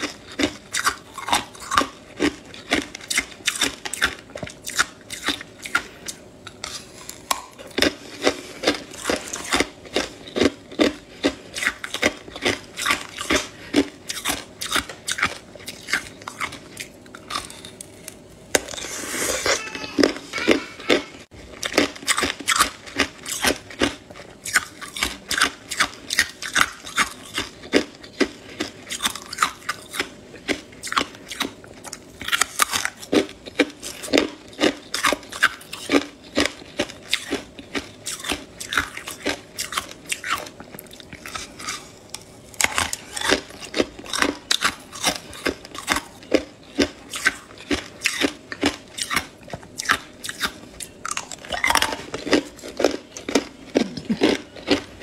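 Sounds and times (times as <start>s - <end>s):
ice crunching being chewed: 0.0s - 55.0s.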